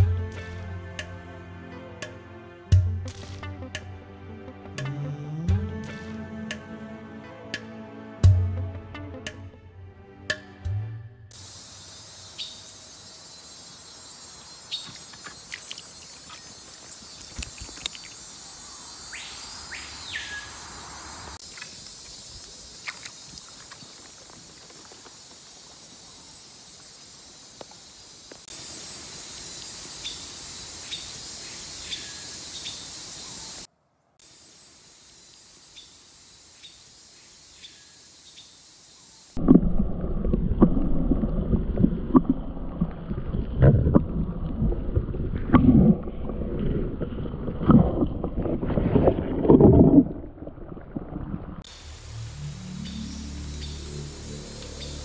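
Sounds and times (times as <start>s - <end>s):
insect drone: 11.3s - 49.7s, 51.6s - 55.0s.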